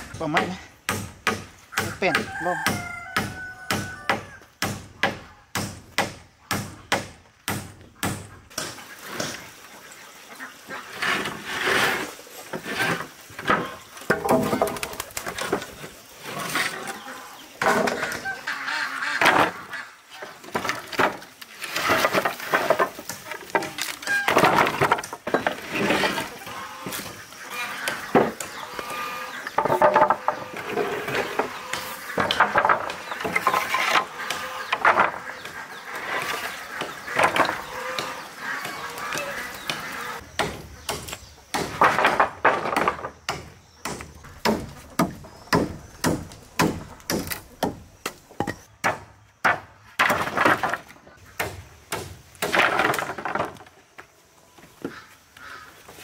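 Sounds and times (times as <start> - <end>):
wooden planks clattering: 10.6 - 18.3, 19.0 - 56.0.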